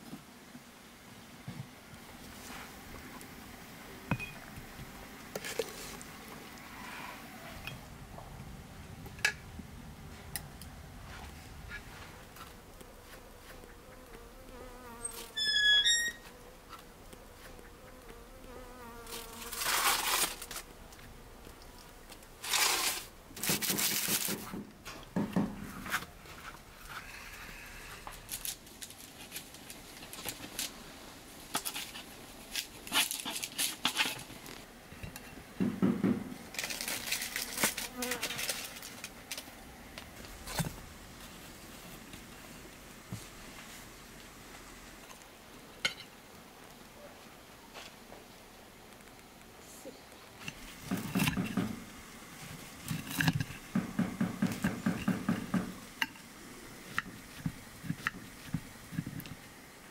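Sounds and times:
rustling and handling noise: 0:01.4 - 0:03.4, 0:04.2 - 0:15.5, 0:19.0 - 0:35.6, 0:36.2 - 0:59.9
bees buzzing: 0:11.4 - 0:22.8.

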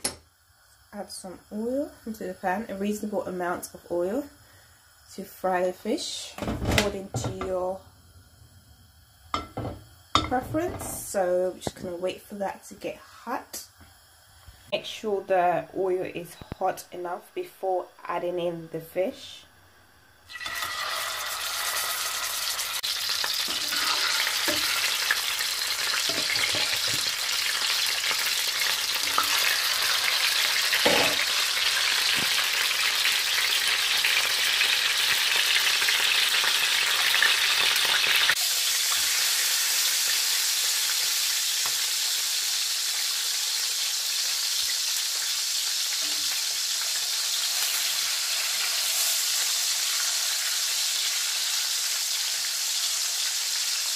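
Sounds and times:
fish sizzling in hot oil: 0:00.0 - 0:12.4, 0:19.8 - 0:53.9
metal spatula knocking on pan: 0:09.4 - 0:10.9.

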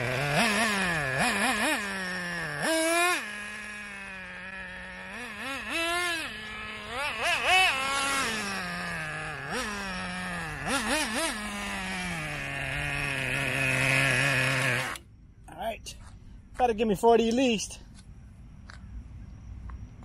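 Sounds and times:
small two-stroke engine revving: 0:00.0 - 0:15.1.

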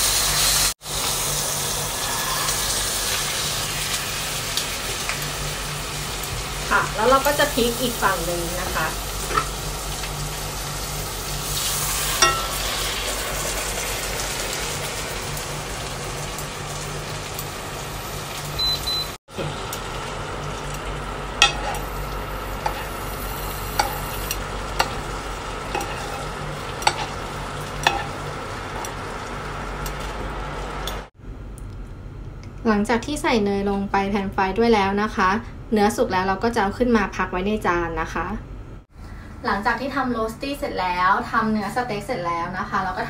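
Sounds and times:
steak sizzling in a frying pan: 0:00.0 - 0:18.6, 0:19.5 - 0:30.8
metal spoon clinking against pan: 0:12.2 - 0:12.6, 0:21.4 - 0:21.8, 0:27.8 - 0:28.2.

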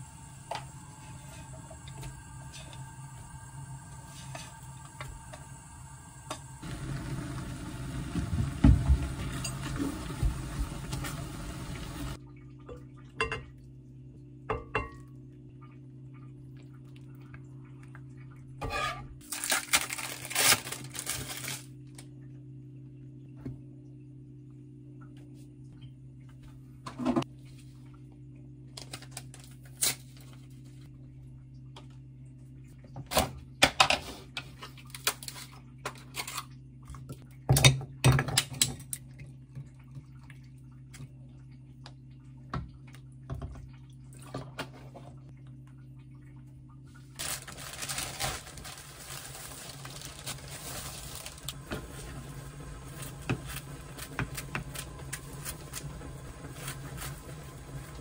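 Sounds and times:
low hum: 0:00.0 - 0:18.6.

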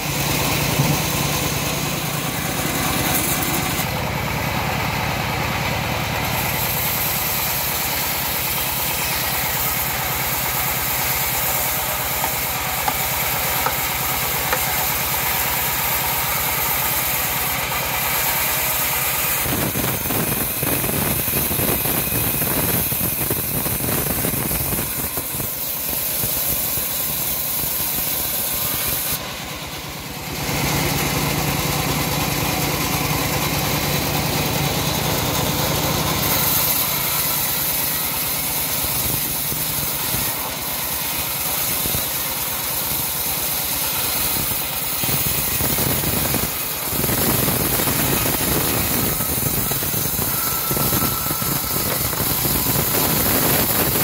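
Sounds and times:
bandsaw cutting through log: 0:00.0 - 0:54.0.

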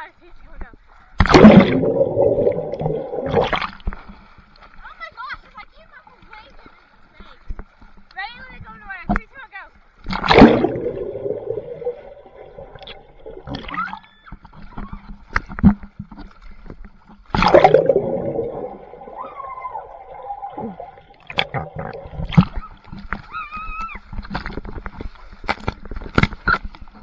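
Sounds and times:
pool water splashing: 0:01.0 - 0:07.5, 0:08.2 - 0:27.0
heavy splash: 0:01.2 - 0:03.9, 0:10.0 - 0:13.9, 0:17.3 - 0:22.8
high voice-like calls: 0:19.1 - 0:20.8.

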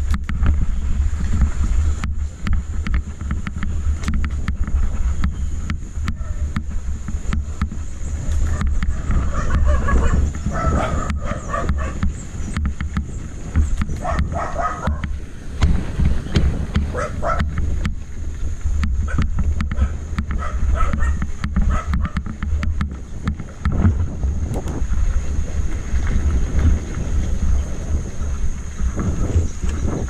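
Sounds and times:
wind rumbling on microphone: 0:00.0 - 0:30.0
dog barking: 0:09.3 - 0:12.0, 0:14.0 - 0:15.0, 0:16.9 - 0:17.5, 0:19.8 - 0:22.2.

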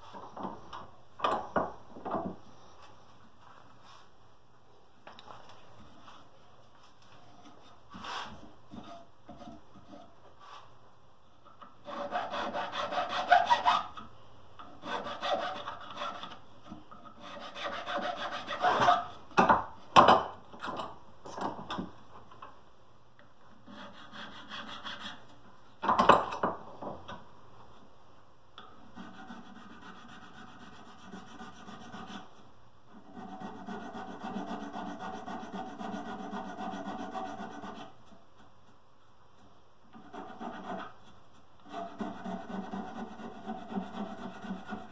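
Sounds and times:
file rubbing on wood: 0:11.8 - 0:14.0, 0:14.8 - 0:16.4, 0:17.2 - 0:19.2, 0:23.6 - 0:25.2, 0:28.9 - 0:32.3, 0:32.9 - 0:38.0, 0:39.9 - 0:44.9.

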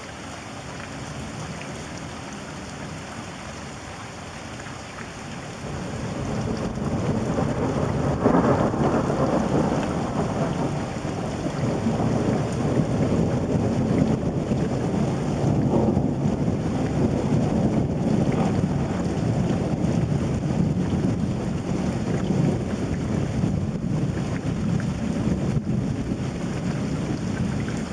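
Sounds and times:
steady rain: 0:00.0 - 0:27.9
thunder rumbling: 0:05.6 - 0:27.9.

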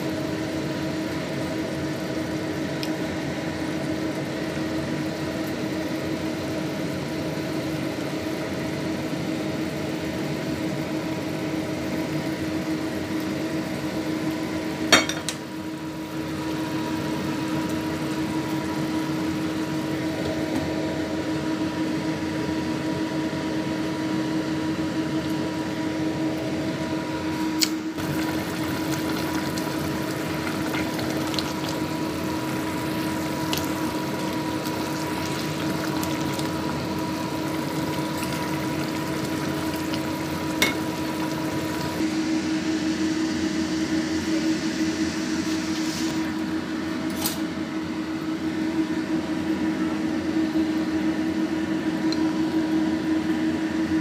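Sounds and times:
appliance hum: 0:00.0 - 0:54.0
broth simmering: 0:09.7 - 0:21.1, 0:27.9 - 0:42.1.

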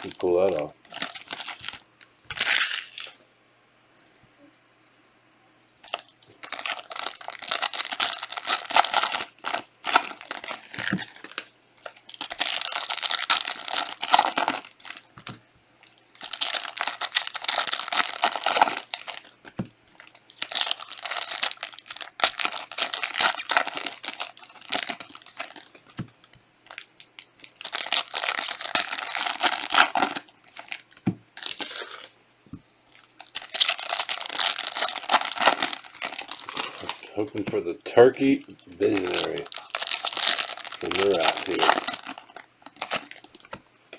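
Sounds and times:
foil wrappers tearing and crinkling: 0:00.0 - 0:03.2, 0:05.9 - 0:26.0, 0:26.6 - 0:32.1, 0:33.0 - 0:43.6.

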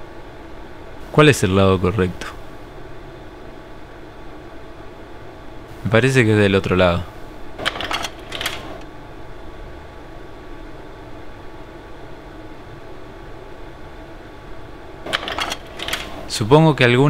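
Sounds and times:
projector fan hum: 0:00.0 - 0:17.0
slide projector clicks: 0:15.1 - 0:16.3.

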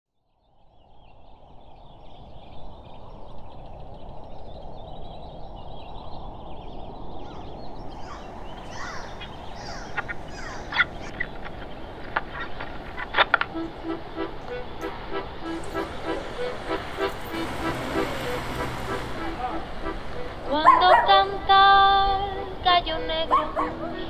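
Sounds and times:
steady low ambient noise: 0:00.8 - 0:24.0
bird squawks and chirps: 0:07.2 - 0:21.2
fine high chatter: 0:08.0 - 0:24.0.

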